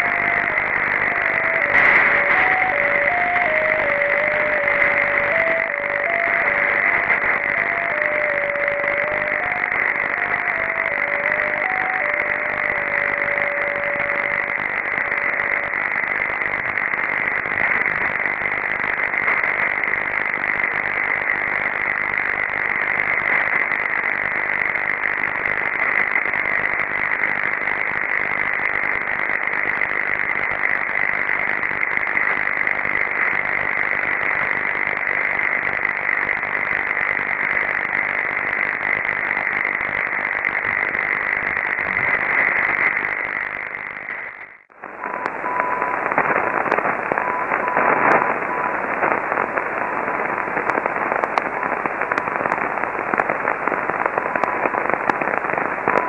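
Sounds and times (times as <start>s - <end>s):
beeping tone melody: 0.0s - 15.7s
radio receiver hiss: 0.0s - 56.0s.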